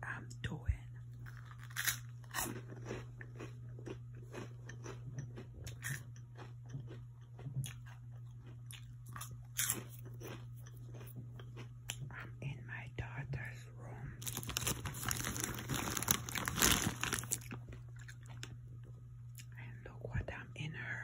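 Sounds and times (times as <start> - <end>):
low steady hum: 0.0 - 21.0
crunching and chewing snacks: 1.1 - 12.3, 14.2 - 19.6.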